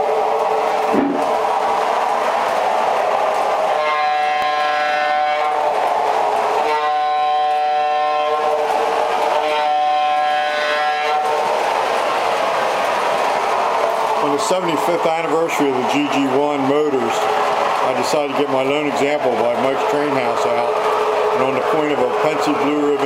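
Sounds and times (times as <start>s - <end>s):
model locomotive horn blasts: 3.8s - 5.6s, 6.7s - 8.6s, 9.4s - 11.3s.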